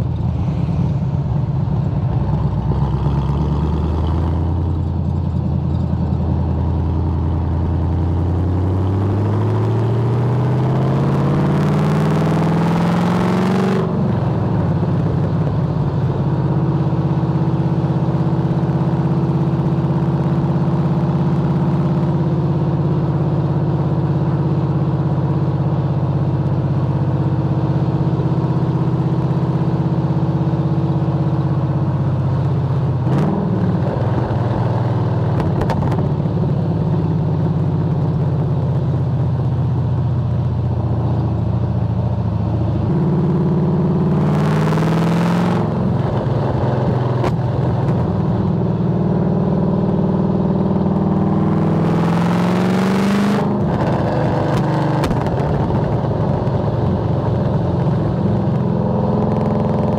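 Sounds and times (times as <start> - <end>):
car engine accelerating: 0.0 - 17.6, 40.6 - 59.9.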